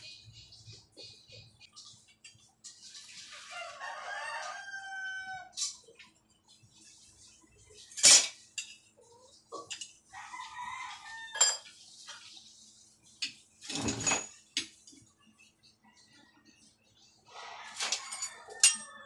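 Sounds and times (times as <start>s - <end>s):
rooster crowing: 3.5s - 5.6s, 17.3s - 19.0s
metal tools clanking: 13.6s - 14.5s, 17.8s - 19.0s.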